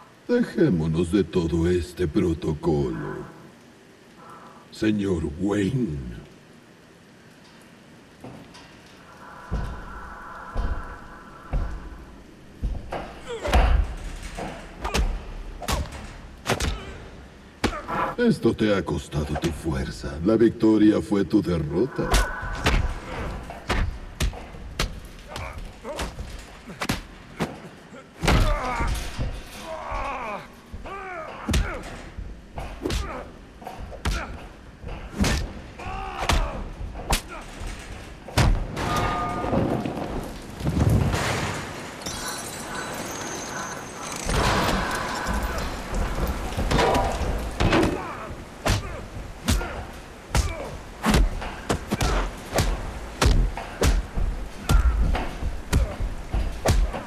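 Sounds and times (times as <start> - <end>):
low rumble of falling water: 0.0 - 57.0
grunts and groans: 9.0 - 15.4, 25.2 - 38.3, 44.5 - 52.8, 53.4 - 57.0.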